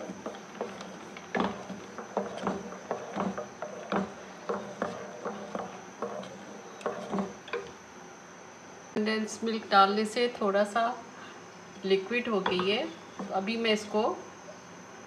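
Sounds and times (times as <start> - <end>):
wooden spatula stirring thick pudding: 0.0 - 7.8.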